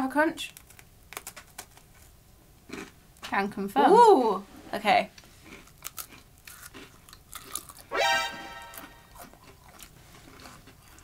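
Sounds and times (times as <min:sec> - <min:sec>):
flaky pastry crunching: 0:00.4 - 0:03.0, 0:05.4 - 0:07.9, 0:09.1 - 0:11.0
rising electronic tone: 0:07.9 - 0:09.2.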